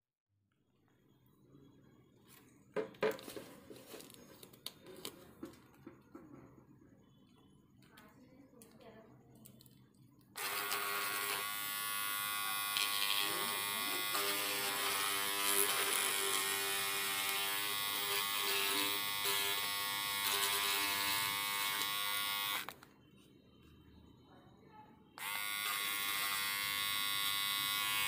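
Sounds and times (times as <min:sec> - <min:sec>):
electric trimmer buzzing: 0:10.4 - 0:22.7, 0:25.2 - 0:28.0.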